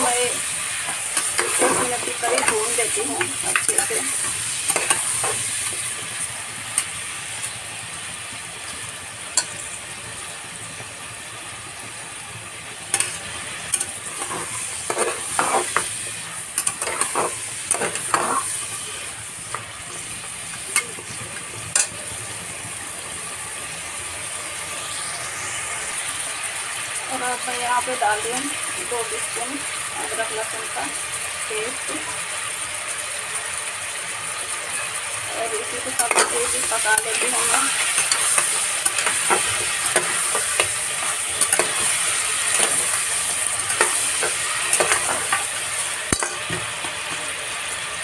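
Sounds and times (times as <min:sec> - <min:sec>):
meat sizzling in ghee: 0:00.0 - 0:48.0
metal spatula scraping a pot: 0:14.2 - 0:15.9.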